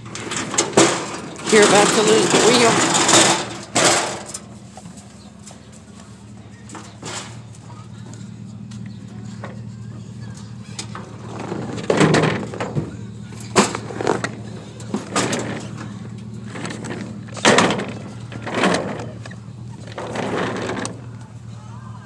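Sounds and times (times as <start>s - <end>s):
scrap clanking on metal deck: 0.0s - 5.8s, 6.7s - 7.5s, 10.7s - 21.1s.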